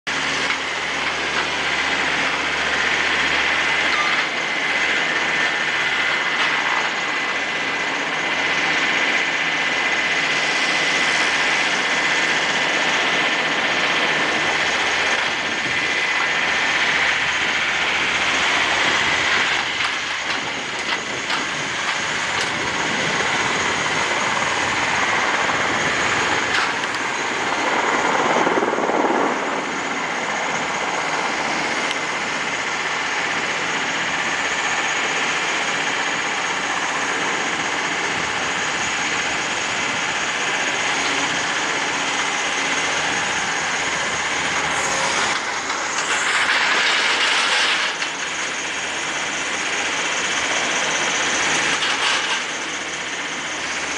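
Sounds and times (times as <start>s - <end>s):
jet engine noise: 0.0s - 53.9s
high whine: 0.1s - 53.9s.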